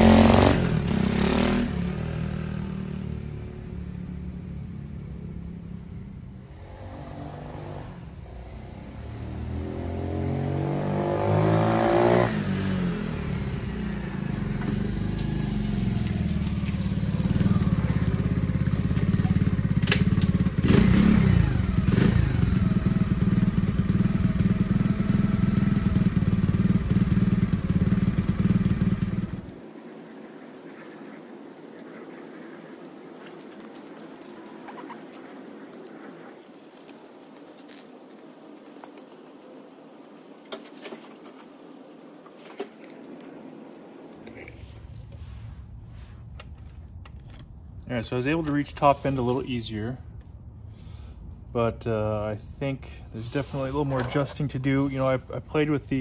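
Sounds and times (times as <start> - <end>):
small motorbike engine revving: 0.0 - 2.9, 6.5 - 29.6.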